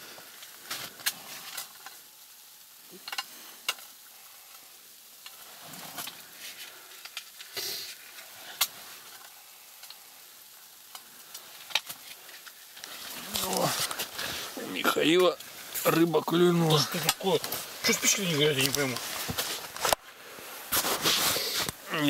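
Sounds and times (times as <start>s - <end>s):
matches scratching on matchbox: 20.7s - 21.8s.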